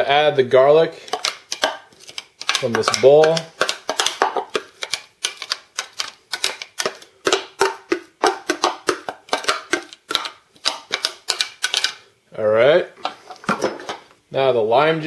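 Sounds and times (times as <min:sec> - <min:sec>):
plastic bowl clicks and taps: 0:01.1 - 0:11.9.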